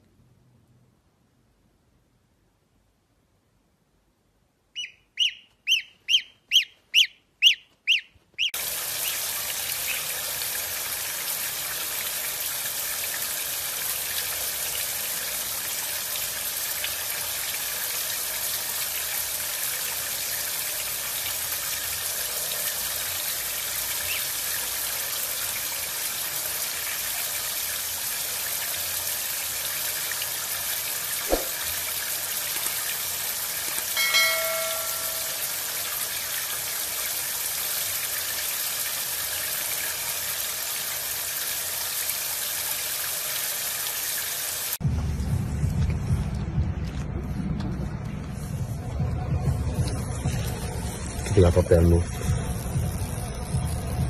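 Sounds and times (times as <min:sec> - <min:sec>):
gosling peeping: 0:04.7 - 0:10.1
running shower hiss: 0:08.6 - 0:44.8, 0:49.8 - 0:54.0.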